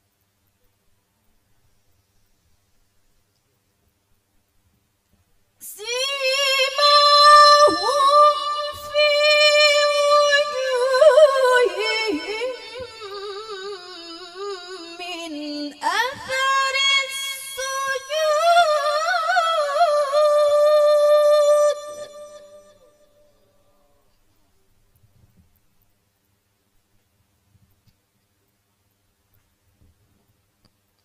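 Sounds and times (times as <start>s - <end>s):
woman reciting melodically: 5.6s - 22.8s.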